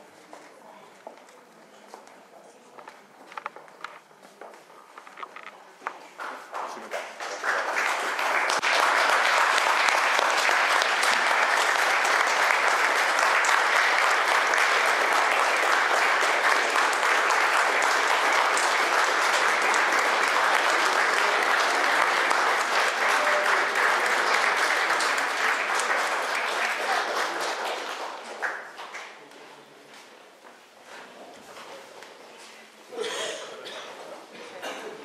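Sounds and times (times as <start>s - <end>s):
audience applauding: 6.1s - 29.2s.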